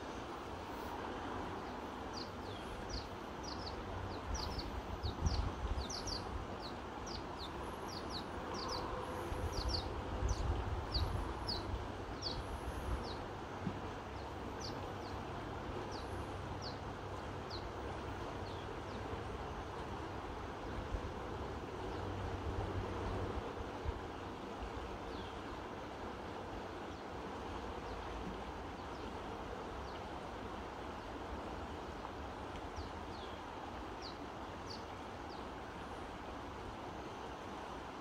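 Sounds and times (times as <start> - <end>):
river rushing: 0.0 - 38.0
bird chirping: 1.6 - 12.4
wind on microphone: 4.3 - 7.2, 8.6 - 13.3.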